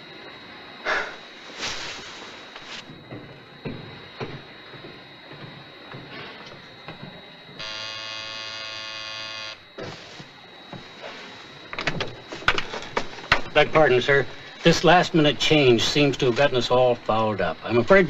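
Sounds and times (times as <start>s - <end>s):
electric buzzer: 7.6s - 9.8s.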